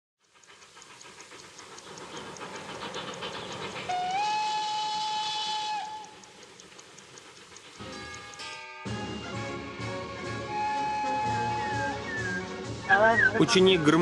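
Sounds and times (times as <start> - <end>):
steam locomotive rhythmic clatter: 0.2 - 14.0
steam whistle long note: 3.9 - 6.2, 7.8 - 12.6.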